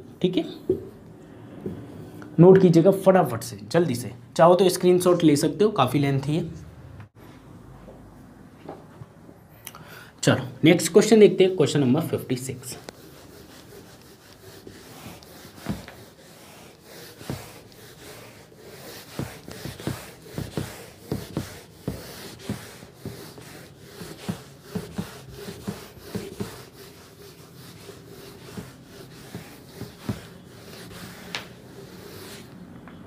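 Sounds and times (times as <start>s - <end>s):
duster scrubbing a whiteboard: 10.9s - 32.6s.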